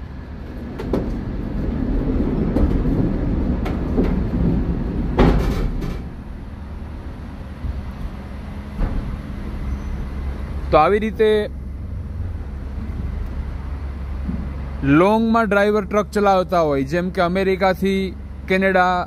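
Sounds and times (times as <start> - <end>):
forklift rumble: 0.0 - 19.0
metallic clanks and knocks: 2.5 - 6.2, 8.7 - 9.8.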